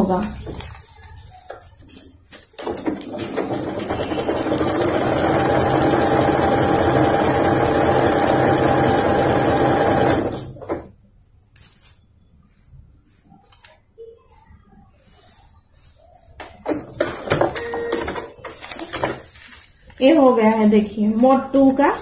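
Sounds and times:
sewing machine stitching: 0:02.6 - 0:10.9.

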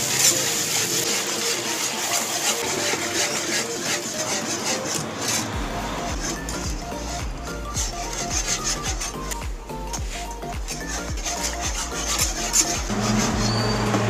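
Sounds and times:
whisk scraping metal frying pan: 0:00.0 - 0:14.0.

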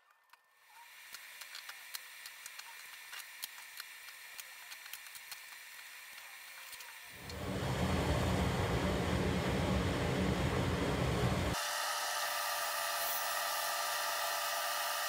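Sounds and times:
loud low rumble: 0:07.3 - 0:11.6.

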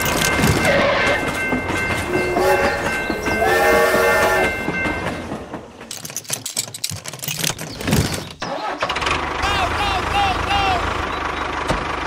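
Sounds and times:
toy train wheels rattling: 0:00.0 - 0:03.7, 0:05.7 - 0:08.4
toy train horn toot: 0:00.6 - 0:01.4, 0:02.1 - 0:04.6.

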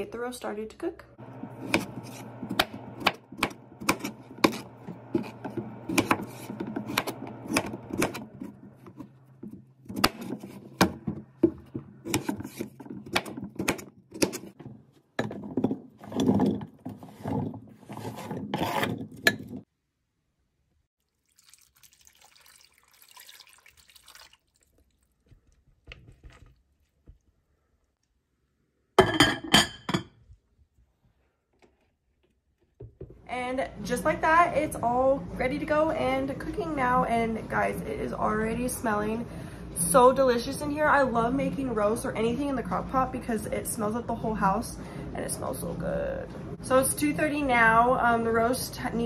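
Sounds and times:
knife chopping on cutting board: 0:01.6 - 0:14.5.

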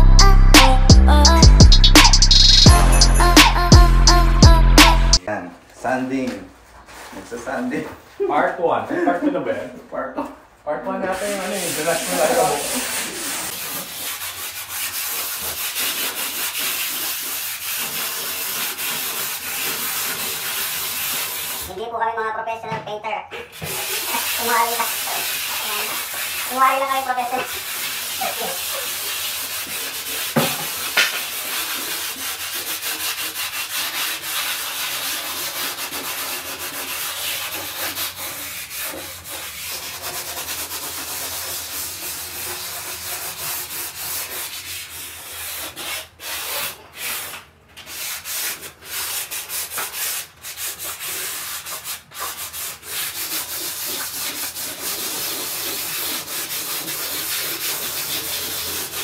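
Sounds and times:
wall being sanded: 0:10.9 - 0:21.8, 0:23.4 - 0:59.0.

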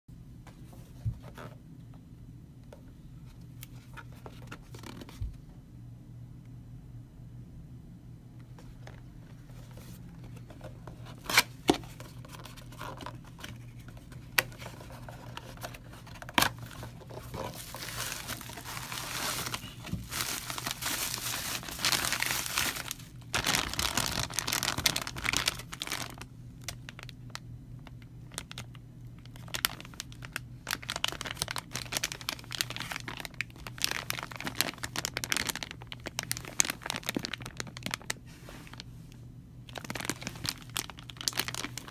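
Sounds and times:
bubble wrap and plastic crinkling: 0:08.6 - 0:39.0, 0:39.6 - 0:41.9.

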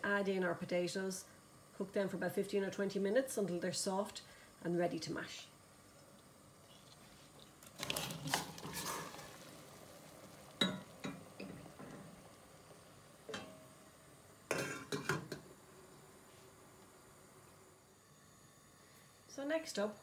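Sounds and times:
bowl knocking against pot: 0:14.5 - 0:15.4
pot lid clattering: 0:14.5 - 0:15.4.

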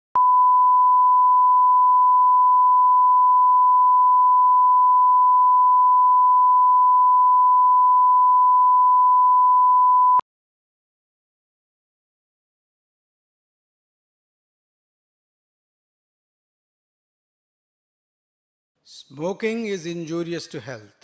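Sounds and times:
sine-wave test tone: 0:00.2 - 0:10.2.

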